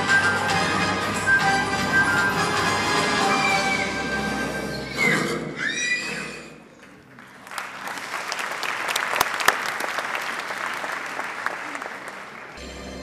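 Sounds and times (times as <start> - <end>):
film soundtrack music: 0.0 - 5.0
horse whinnying: 2.9 - 6.7
audience applauding: 7.0 - 12.7.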